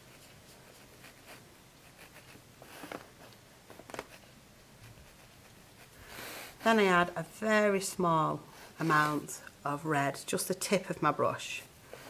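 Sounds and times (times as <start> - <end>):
paintbrush brushing on paper: 0.0 - 7.1.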